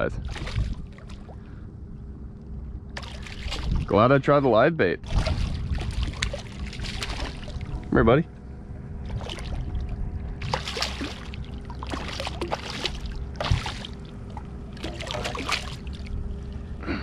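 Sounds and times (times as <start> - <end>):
steady low hum: 0.0 - 17.0
fish splashing at the surface: 0.3 - 1.4, 3.0 - 3.9, 5.1 - 7.8, 9.1 - 9.8, 10.4 - 16.2.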